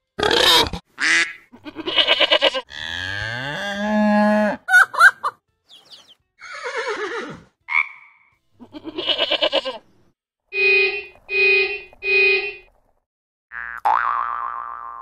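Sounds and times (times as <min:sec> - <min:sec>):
goat bleating: 0:01.5 - 0:03.1, 0:08.6 - 0:09.9
horn beeping: 0:10.5 - 0:12.8.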